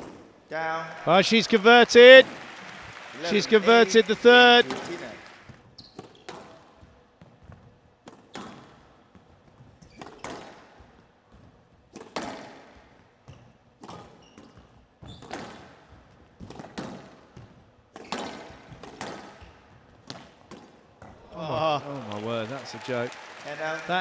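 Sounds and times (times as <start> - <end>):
ball hitting court walls: 0.0 - 0.3, 4.6 - 6.7, 8.0 - 10.8, 11.9 - 21.4
racket hitting squash ball: 4.7 - 5.1, 8.0 - 8.8, 9.8 - 10.8, 11.9 - 12.8, 15.2 - 21.2.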